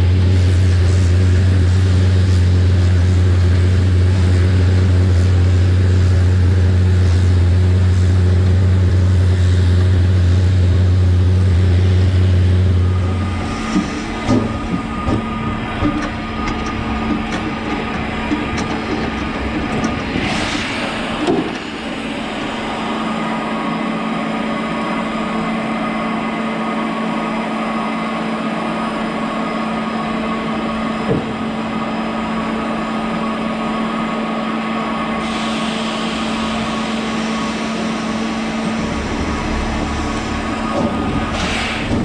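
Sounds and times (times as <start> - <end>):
steam train humming and hissing: 0.0 - 42.0
escaping steam hiss: 0.1 - 17.0, 19.9 - 25.8, 35.0 - 42.0.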